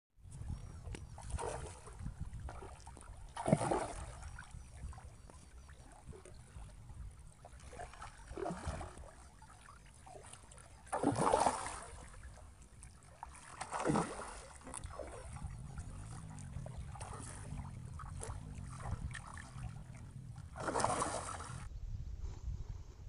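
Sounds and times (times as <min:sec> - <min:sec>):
fish splashing at the surface: 0:02.5 - 0:04.4, 0:07.6 - 0:09.2, 0:10.1 - 0:12.2, 0:13.2 - 0:19.8, 0:20.5 - 0:21.7
low rumble: 0:14.8 - 0:23.0.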